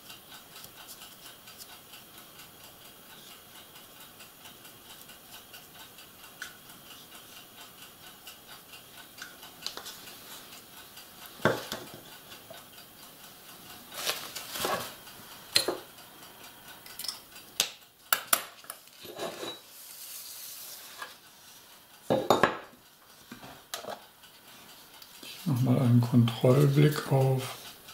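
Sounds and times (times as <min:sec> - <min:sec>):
faint steady ticking: 0:00.0 - 0:27.9
paper rustling: 0:13.9 - 0:15.0.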